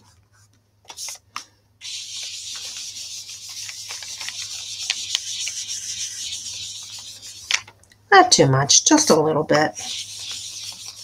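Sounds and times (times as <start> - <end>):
brush rubbing on paper: 1.8 - 7.6, 9.7 - 11.0.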